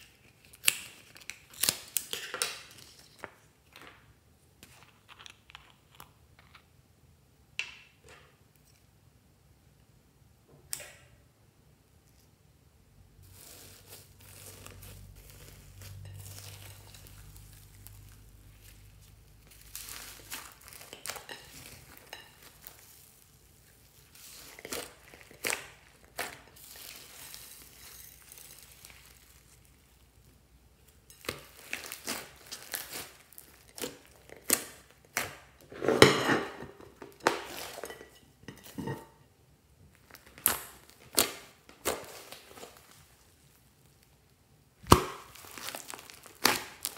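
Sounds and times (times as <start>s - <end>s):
slime crinkling and crackling: 0.0s - 3.8s, 13.2s - 35.7s, 36.9s - 39.0s, 39.9s - 46.9s.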